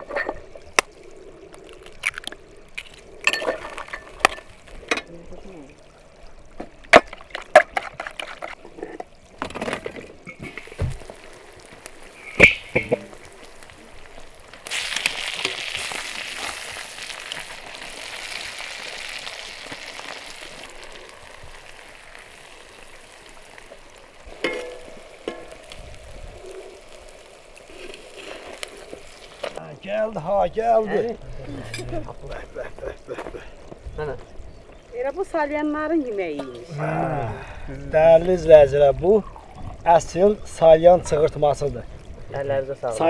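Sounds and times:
chicken sizzling in pan: 10.4s - 30.9s.

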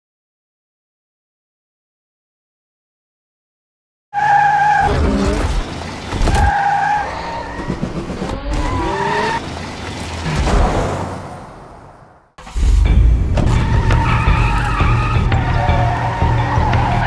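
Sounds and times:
tyres squealing: 4.2s - 10.5s, 13.4s - 17.0s.

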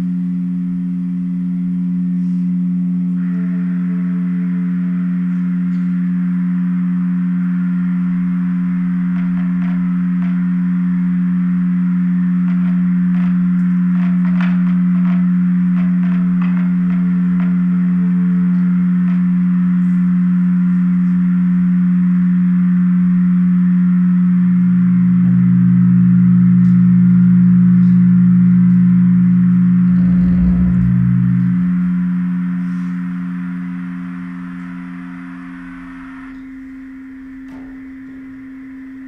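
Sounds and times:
drone of pure tones: 0.0s - 39.0s
lower tone: 0.0s - 39.0s
brief low rumble: 29.5s - 33.4s.

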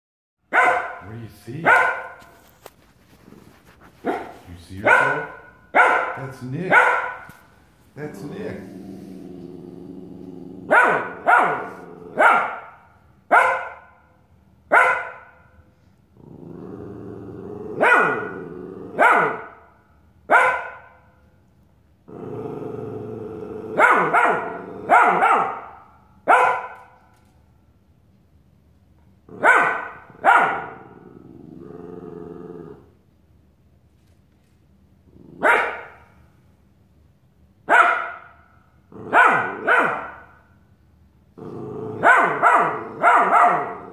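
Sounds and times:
puppy barking: 0.5s - 2.5s, 4.0s - 7.5s, 10.7s - 14.0s, 14.7s - 15.5s, 17.8s - 18.4s, 19.0s - 19.7s, 20.3s - 21.0s, 23.7s - 27.0s, 29.3s - 30.9s, 35.4s - 36.2s, 37.7s - 38.4s, 39.0s - 40.4s, 42.0s - 43.9s
puppy growling: 2.3s - 5.2s, 7.2s - 12.4s, 16.2s - 19.4s, 22.1s - 25.3s, 30.5s - 33.0s, 35.0s - 35.7s, 38.9s - 39.8s, 41.3s - 43.9s.

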